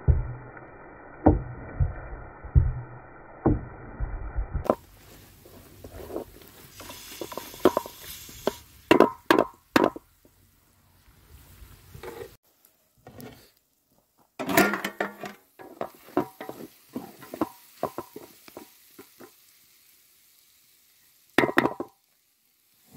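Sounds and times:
chicken sizzling in a pot: 0:00.0 - 0:22.9
wooden spatula scraping a pot: 0:04.7 - 0:08.6, 0:15.0 - 0:19.2.

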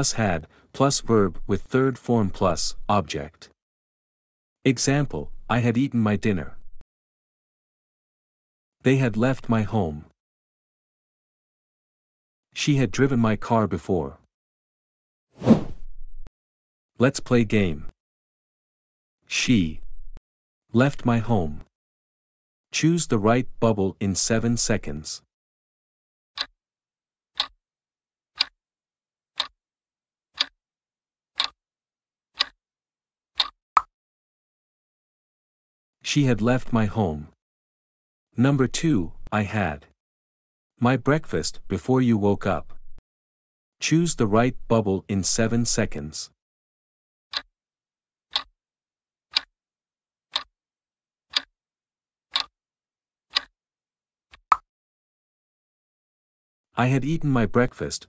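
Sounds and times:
clock ticking: 0:31.4 - 0:31.6, 0:32.4 - 0:32.6, 0:33.4 - 0:33.6, 0:52.3 - 0:52.5, 0:53.3 - 0:53.5.

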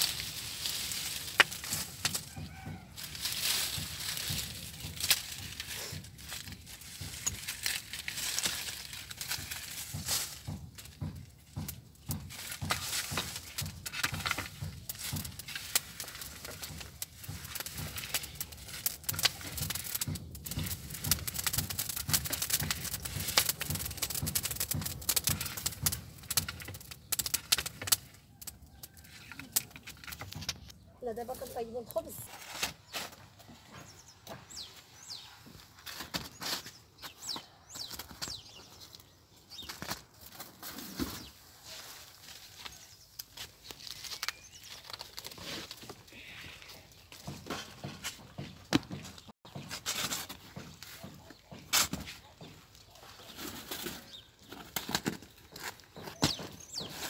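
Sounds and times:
wood fire crackling: 0:00.0 - 0:32.3
metal poker scraping burning wood: 0:00.0 - 0:41.4, 0:42.7 - 0:57.0.

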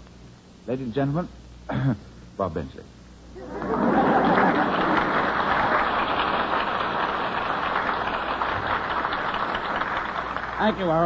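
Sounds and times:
studio audience applauding: 0:03.6 - 0:11.0.

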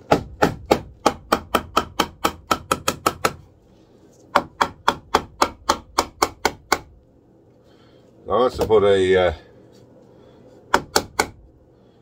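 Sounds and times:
hammer tapping wood: 0:00.0 - 0:03.4, 0:04.3 - 0:06.9, 0:10.7 - 0:11.4.

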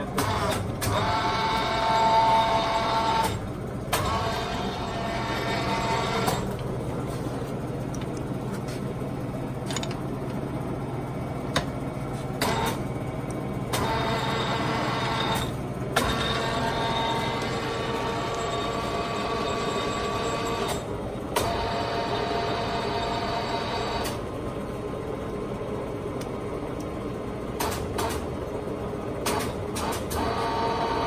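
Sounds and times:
lathe motor humming: 0:13.0 - 0:23.9.

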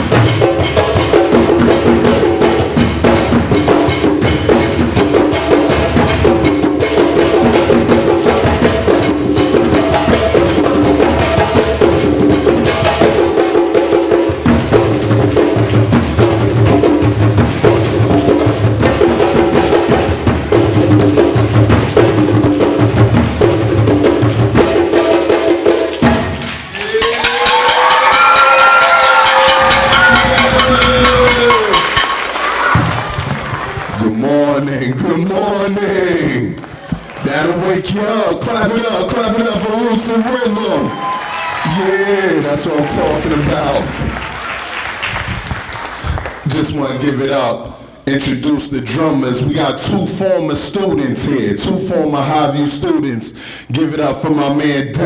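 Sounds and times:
hand drums playing fast rhythm: 0:00.0 - 0:34.3, 0:34.9 - 0:46.7
audience cheering: 0:26.5 - 0:34.6, 0:40.2 - 0:46.8.

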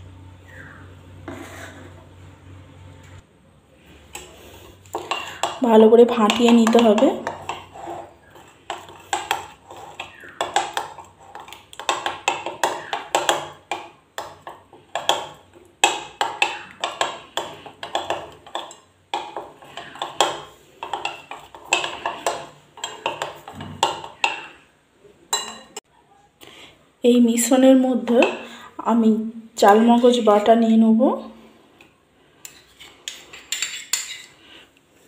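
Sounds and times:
metal spoon beating in a bowl: 0:05.0 - 0:24.6, 0:25.3 - 0:25.8.

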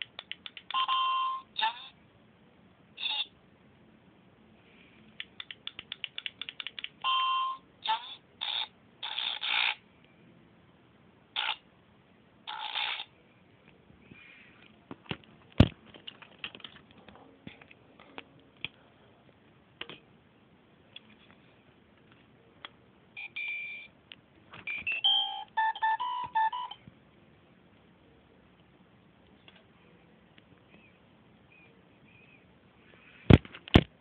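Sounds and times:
fast clicks: 0:05.2 - 0:07.0
sharp click: 0:05.2 - 0:07.0
harsh buzzing noise: 0:07.8 - 0:09.8, 0:12.4 - 0:13.1.

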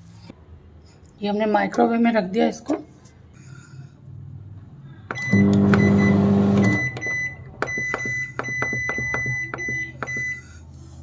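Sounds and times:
high electronic beep: 0:05.1 - 0:10.4
microwave oven humming: 0:05.1 - 0:10.4.

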